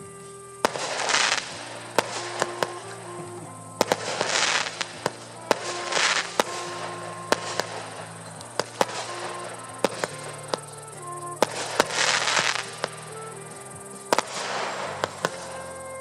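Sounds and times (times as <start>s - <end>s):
background music: 0.0s - 16.0s
firework hissing: 0.0s - 16.0s
firework bangs: 0.6s - 16.0s.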